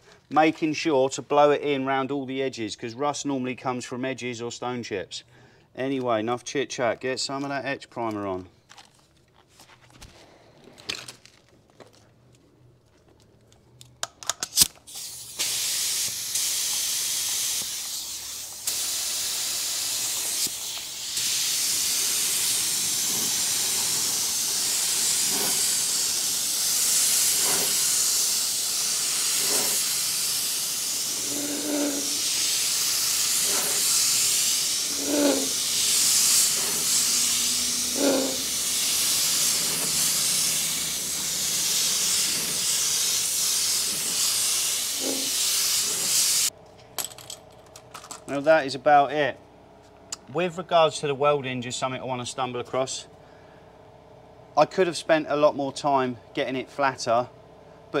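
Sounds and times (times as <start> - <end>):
spray gun clicks: 14.0 - 46.5
spray gun air hissing: 14.9 - 46.5.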